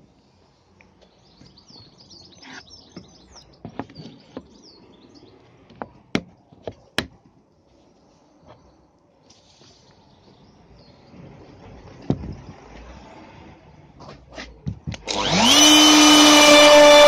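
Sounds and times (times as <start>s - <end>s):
small birds chirping: 0.2s - 6.0s, 7.7s - 11.3s.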